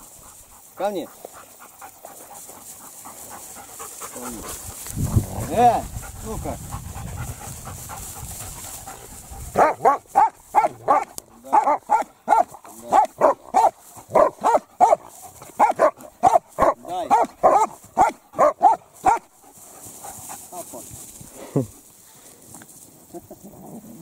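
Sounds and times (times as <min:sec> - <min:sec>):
dogs barking sharply: 0:09.5 - 0:19.3.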